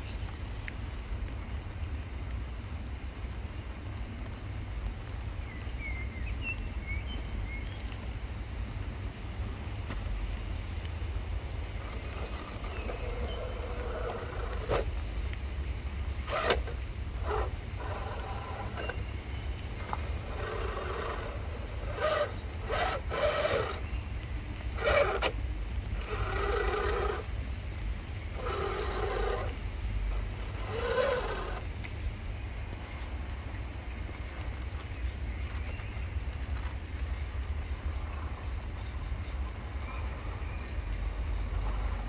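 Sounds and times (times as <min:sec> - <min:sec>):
low steady rumble: 0:00.0 - 0:42.0
electric motor whining: 0:11.7 - 0:23.9, 0:24.6 - 0:27.4, 0:28.3 - 0:31.7.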